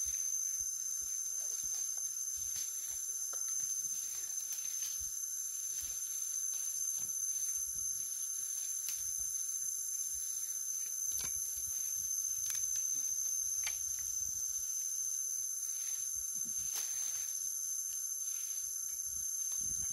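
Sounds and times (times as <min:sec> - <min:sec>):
high-pitched insect drone: 0:00.0 - 0:19.9
rustles and thumps in grass: 0:15.8 - 0:17.4.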